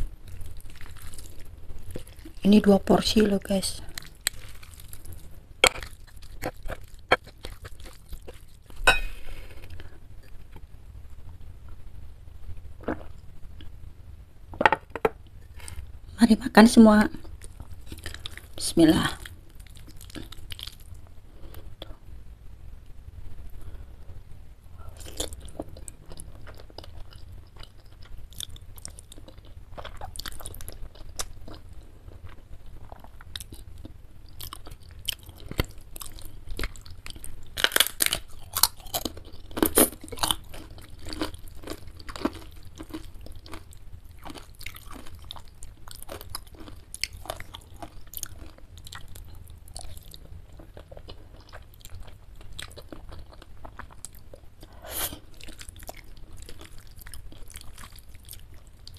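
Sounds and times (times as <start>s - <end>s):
wet chewing and biting: 3.9s - 8.8s
crisp crunching bites: 35.5s - 49.0s.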